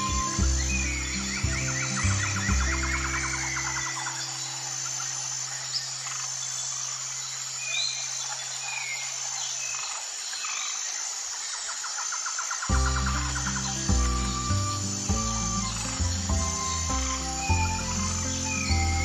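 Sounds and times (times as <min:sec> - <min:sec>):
low note of background music: 0:00.0 - 0:04.6, 0:12.7 - 0:19.0
faint bird chirps: 0:00.0 - 0:19.0
steady outdoor hiss: 0:00.0 - 0:19.0.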